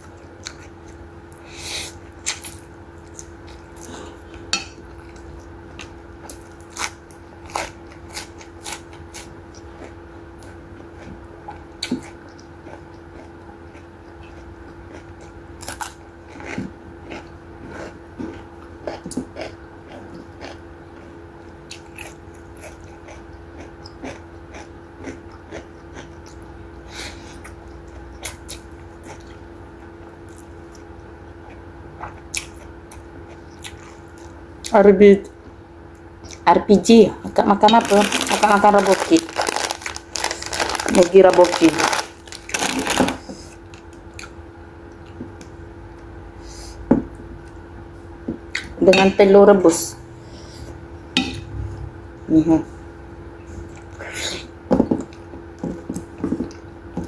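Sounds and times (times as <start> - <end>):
wet chewing and slurping noodles: 0.0 - 26.4, 27.0 - 34.4
steady low hum: 0.0 - 57.0.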